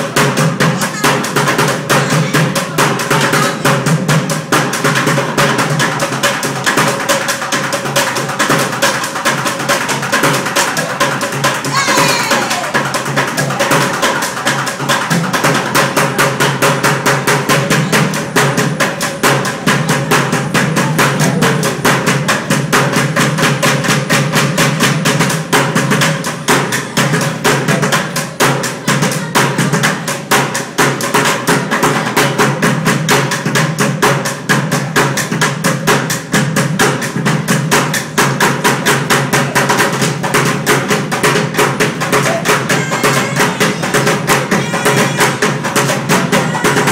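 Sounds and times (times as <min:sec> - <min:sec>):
drumming on plastic buckets: 0:00.0 - 0:46.9.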